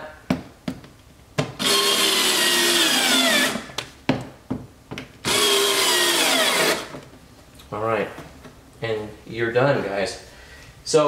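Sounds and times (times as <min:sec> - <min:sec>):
power driver motor whirring: 0:01.6 - 0:03.7, 0:05.3 - 0:06.9.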